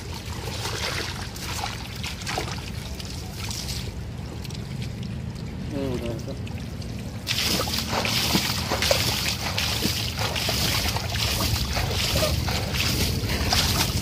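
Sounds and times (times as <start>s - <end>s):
water splashing and sloshing: 0.0s - 14.0s
low rumble: 4.0s - 14.0s.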